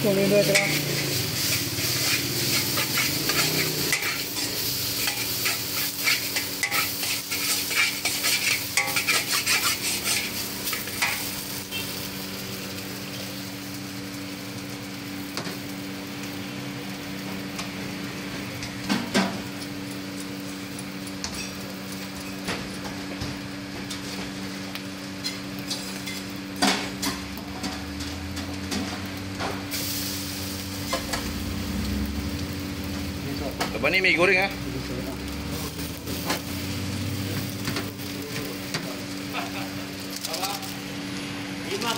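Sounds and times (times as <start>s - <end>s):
constant hum: 0.0s - 41.9s
food sizzling in a wok: 0.0s - 41.9s
spatula scraping in a wok: 0.1s - 12.0s, 25.2s - 29.0s.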